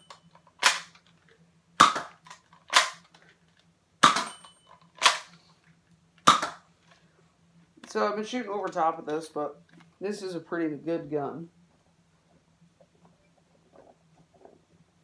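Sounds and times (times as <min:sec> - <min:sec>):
dart blaster firing snaps: 0:00.6 - 0:01.0, 0:01.8 - 0:03.0, 0:04.0 - 0:04.4, 0:06.2 - 0:06.6.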